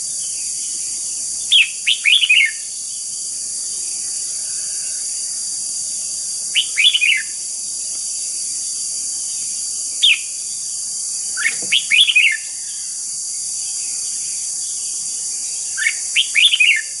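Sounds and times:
bird singing whistled notes: 0:00.0 - 0:03.2, 0:06.5 - 0:07.4, 0:09.2 - 0:10.7, 0:11.3 - 0:17.0
steady high hiss: 0:00.0 - 0:17.0.

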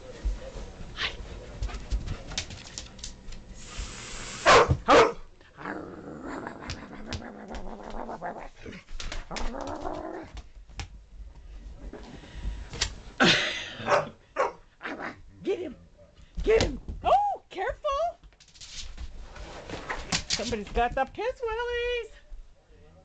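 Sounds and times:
dog barking: 0:04.4 - 0:05.3, 0:13.8 - 0:14.6
dog play growling: 0:05.5 - 0:10.4.

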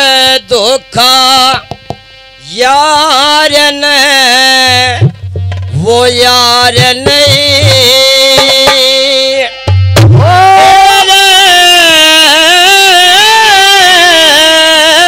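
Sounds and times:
harmonium: 0:00.0 - 0:15.0
man singing through a pa: 0:00.0 - 0:15.0
drum beats: 0:01.3 - 0:02.1, 0:04.6 - 0:11.4.

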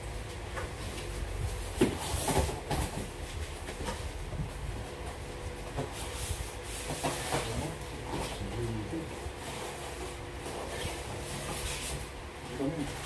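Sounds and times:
cardboard carton knocks and scrapes: 0:01.7 - 0:03.1.

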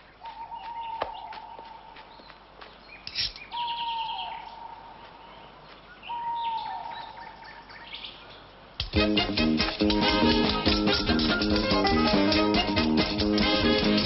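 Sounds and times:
birds chirping and trilling: 0:00.0 - 0:08.8.

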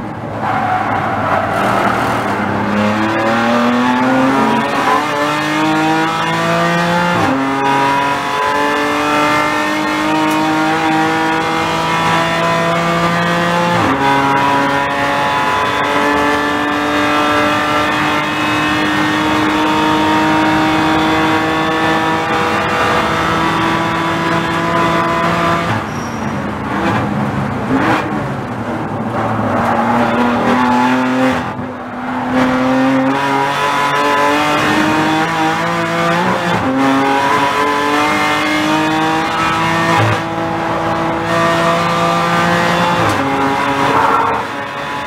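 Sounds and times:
car engine at full throttle: 0:00.0 - 0:45.0
gear upshifts: 0:40.8 - 0:44.9.

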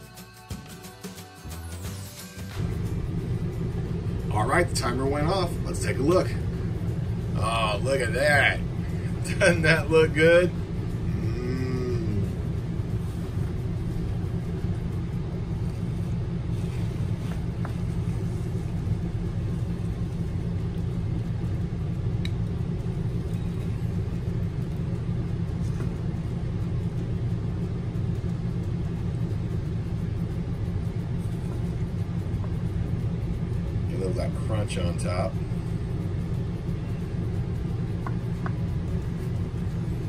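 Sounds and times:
steady low hum: 0:02.4 - 0:40.0.

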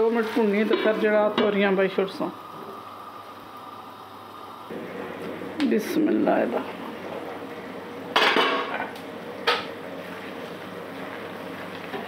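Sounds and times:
vegetables simmering hiss: 0:00.0 - 0:12.0.

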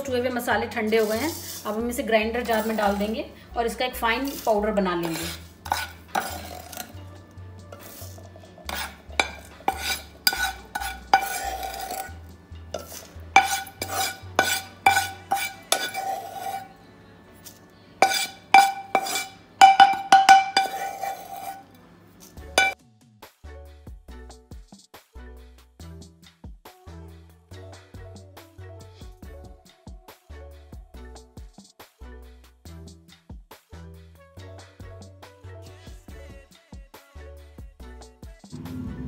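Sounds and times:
spoon scraping and clinking steel pan: 0:00.7 - 0:03.3, 0:04.2 - 0:07.0, 0:07.7 - 0:16.8, 0:17.4 - 0:22.8.

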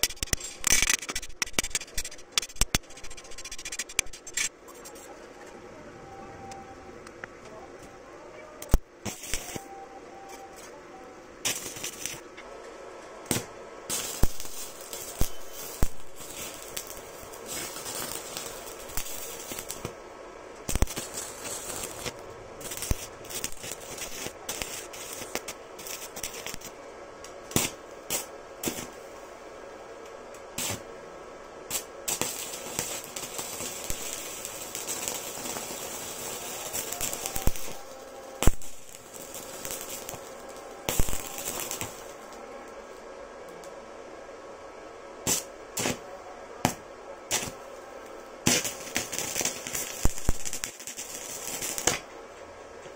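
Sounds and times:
spatter pops: 0:00.0 - 0:04.5, 0:20.6 - 0:28.9
welding arc crackling and hissing: 0:00.0 - 0:05.0, 0:08.6 - 0:10.8, 0:11.4 - 0:12.3, 0:13.2 - 0:31.0, 0:31.6 - 0:43.8, 0:45.2 - 0:52.2.

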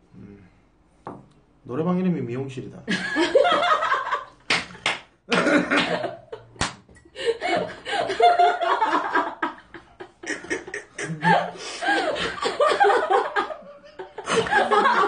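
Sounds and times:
people laughing hard: 0:02.9 - 0:04.4, 0:05.3 - 0:06.5, 0:07.2 - 0:15.0.

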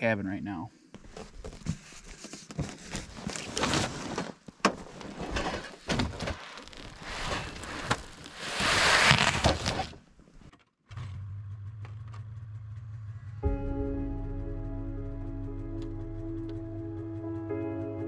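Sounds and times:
box scraping onto sled: 0:03.0 - 0:10.0.

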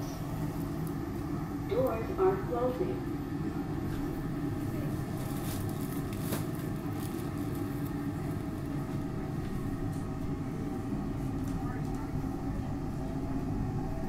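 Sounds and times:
train car hum and rumble: 0:00.0 - 0:14.0.

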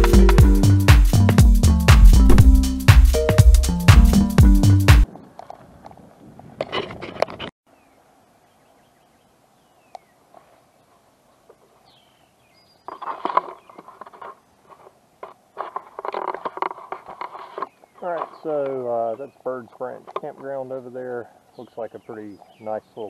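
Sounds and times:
footsteps crunching on trail: 0:12.8 - 0:18.8.

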